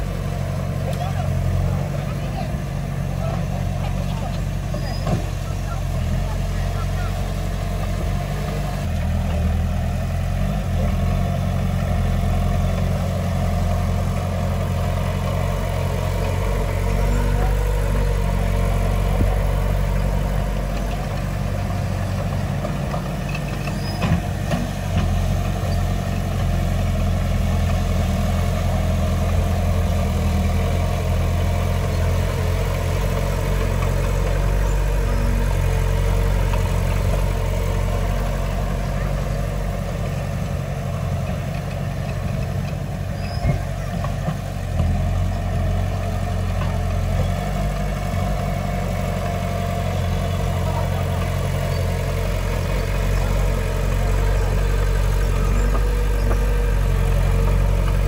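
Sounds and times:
heavy diesel engine running: 0.0s - 58.0s.

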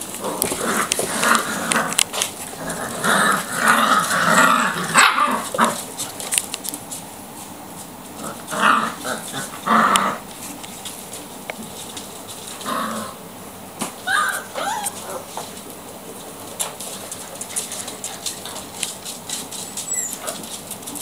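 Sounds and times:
puppies yapping and growling: 0.2s - 6.3s, 13.9s - 15.6s, 16.6s - 21.0s.

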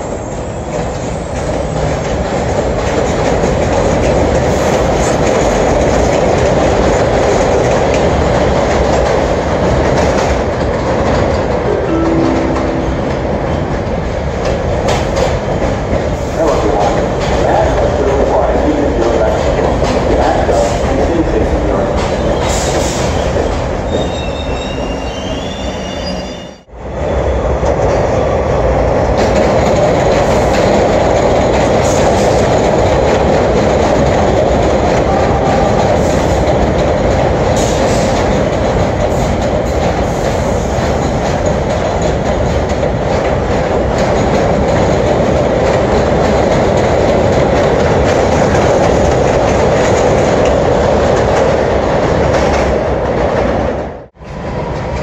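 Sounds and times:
subway train rumbling: 0.0s - 55.0s
high wheel squeal: 22.4s - 27.4s.

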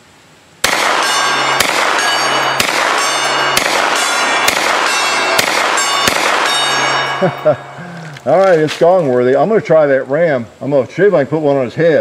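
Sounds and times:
rifle gunshots: 0.6s - 7.0s
steel gong ringing: 0.9s - 7.9s.

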